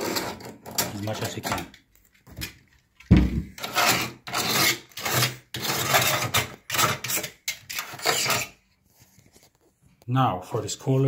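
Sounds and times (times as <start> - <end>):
knife blade scraping mortar: 0.0 - 0.9, 3.6 - 8.6.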